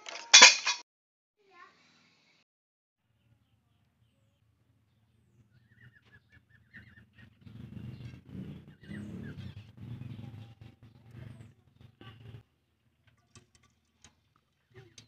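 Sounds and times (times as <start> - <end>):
bird chirping: 3.2 - 11.9.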